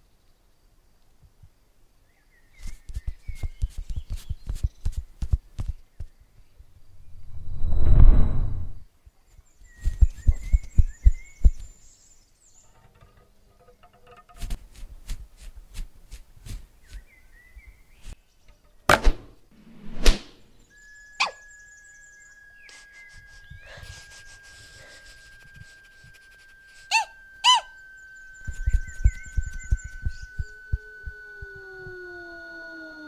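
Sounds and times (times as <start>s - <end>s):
loud whooshes: 6.9s - 8.8s, 19.1s - 20.6s
whistle-like tone: 6.9s - 8.8s, 9.8s - 11.7s, 20.6s - 33.0s
short squeaks: 20.8s - 21.7s, 22.4s - 33.0s.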